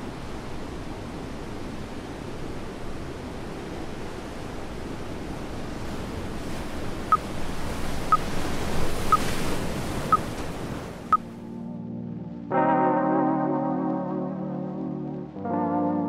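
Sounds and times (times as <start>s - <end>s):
ocean surf rushing onto beach: 0.0s - 11.2s.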